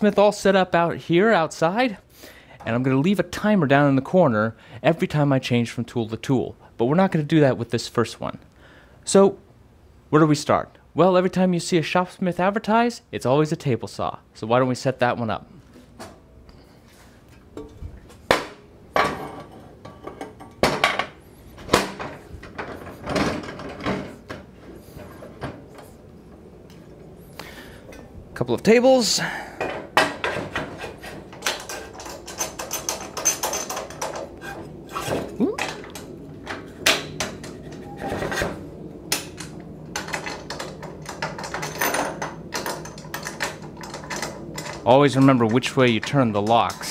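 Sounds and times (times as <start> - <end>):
metal clanks and knocks: 17.3 - 26.0, 29.6 - 46.9
metal scraping: 30.1 - 46.9.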